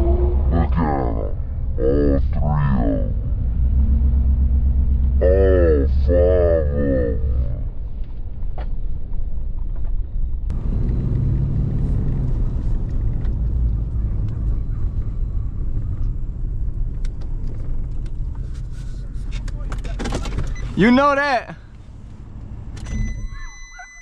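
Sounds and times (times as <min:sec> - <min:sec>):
truck engine and tyre rumble: 0:00.0 - 0:24.0
road noise hiss: 0:21.0 - 0:22.8.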